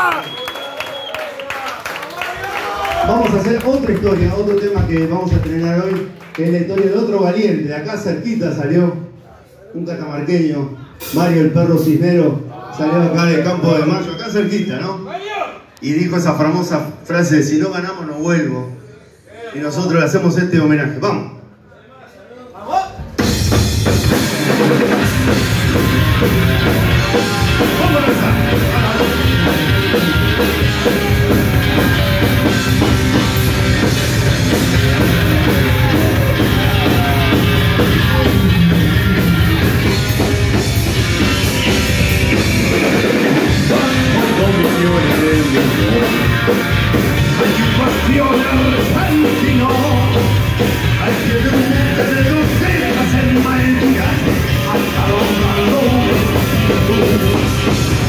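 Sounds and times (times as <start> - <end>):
rock band playing: 10.9 - 12.0, 23.0 - 58.0
drum kit beat: 23.0 - 58.0.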